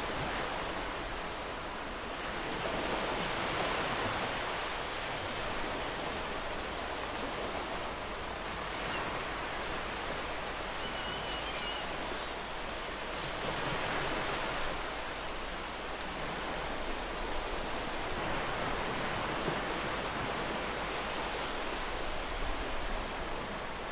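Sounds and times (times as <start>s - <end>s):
wind: 0.0s - 23.9s
faint high chirp: 10.8s - 12.0s.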